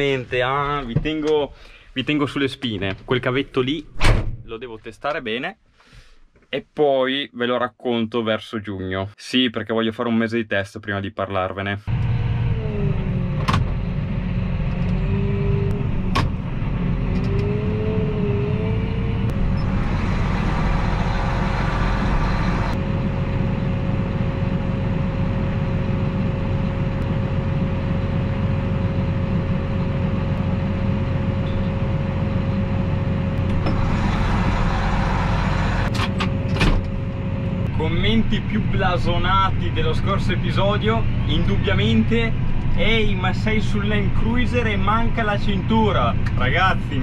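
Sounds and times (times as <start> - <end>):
steady whine: 11.9 - 47.0
tractor diesel engine idling: 19.3 - 47.0.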